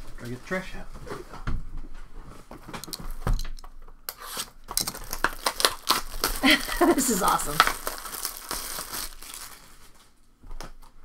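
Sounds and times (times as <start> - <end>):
plastic wrap crinkling: 4.5 - 11.0.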